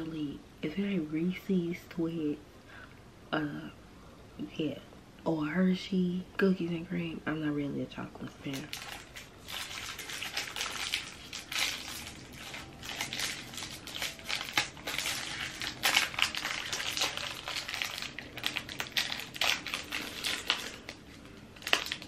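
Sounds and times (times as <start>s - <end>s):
wrapper crinkling: 8.5s - 22.0s.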